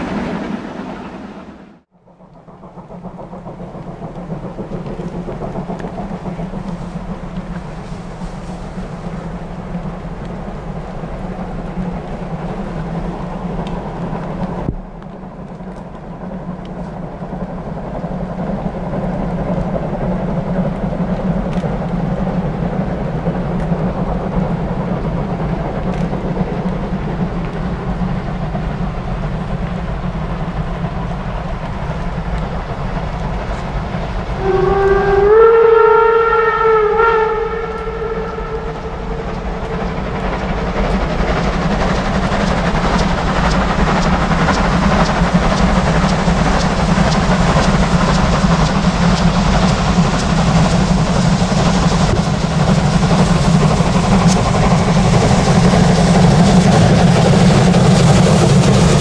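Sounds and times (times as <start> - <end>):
steam locomotive exhaust rumble: 0.0 - 59.0
steam whistle: 34.3 - 39.9.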